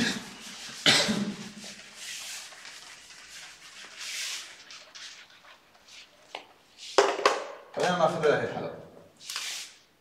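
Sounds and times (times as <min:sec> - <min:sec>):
eraser swishing on whiteboard: 0:00.0 - 0:07.0, 0:09.2 - 0:09.9.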